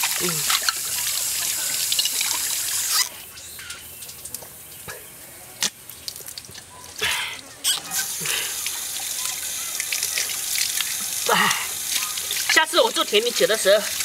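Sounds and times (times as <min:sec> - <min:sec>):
water running from tap: 0:00.0 - 0:03.1, 0:07.9 - 0:14.0
water dripping and splashing: 0:00.0 - 0:14.0.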